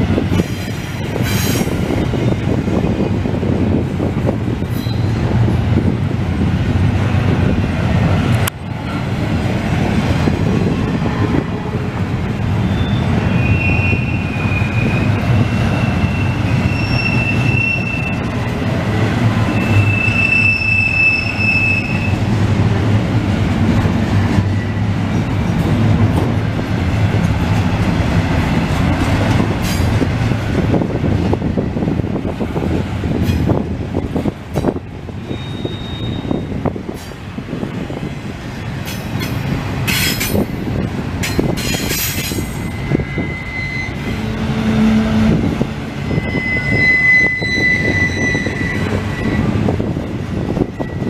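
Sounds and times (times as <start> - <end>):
train wheels rumbling on rail: 0.0 - 51.0
high-pitched wheel squeals: 4.7 - 5.1, 12.6 - 18.3, 19.5 - 22.2, 35.2 - 36.6, 41.6 - 45.4, 46.0 - 51.0.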